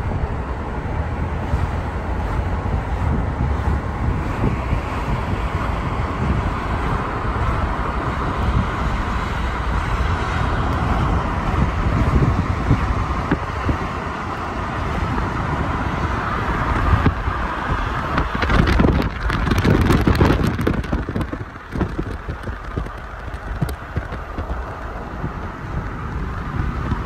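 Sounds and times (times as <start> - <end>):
car road noise: 0.0 - 27.0
wind buffeting microphone: 0.0 - 27.0.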